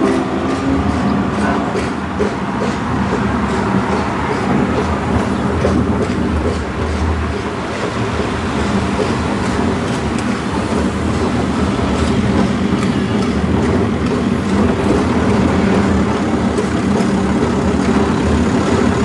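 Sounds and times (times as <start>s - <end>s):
tram wheels rumbling on track: 0.0s - 19.0s.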